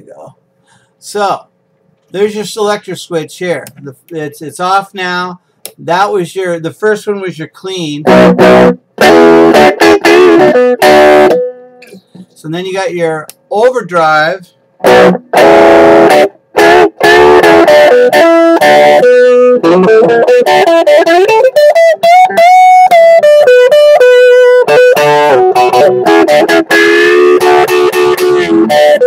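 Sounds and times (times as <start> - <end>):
overdriven electric guitar: 8.1 - 12.2, 14.8 - 29.0.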